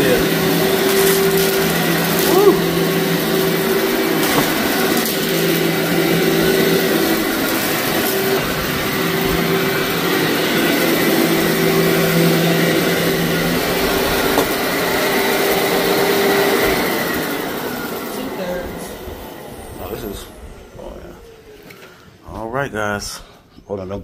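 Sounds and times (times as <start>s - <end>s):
vacuum cleaner running: 0.0s - 22.2s.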